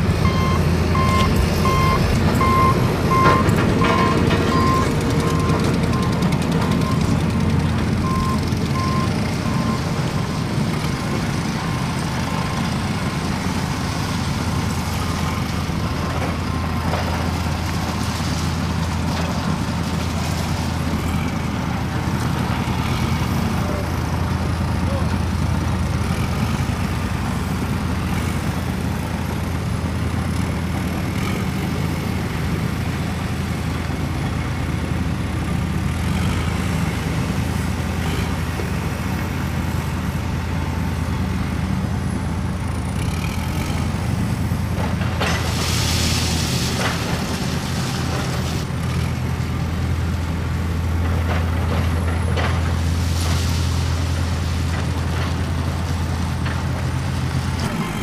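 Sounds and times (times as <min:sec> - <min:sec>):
truck diesel engine running: 0:00.0 - 0:58.0
high beep: 0:00.2 - 0:05.5.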